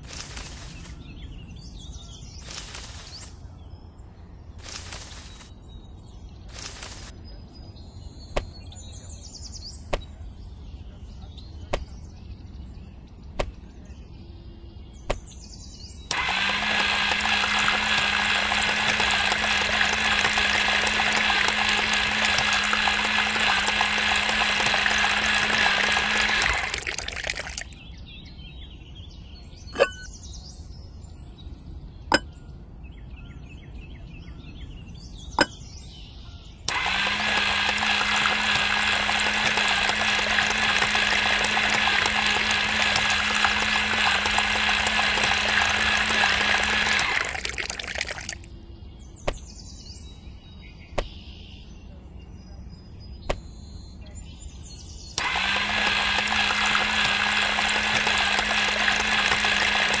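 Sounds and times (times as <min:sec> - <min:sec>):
small motor humming: 0:00.0 - 0:00.9, 0:04.6 - 0:05.5, 0:06.5 - 0:07.1, 0:16.1 - 0:27.8, 0:36.7 - 0:48.5, 0:55.2 - 1:00.0.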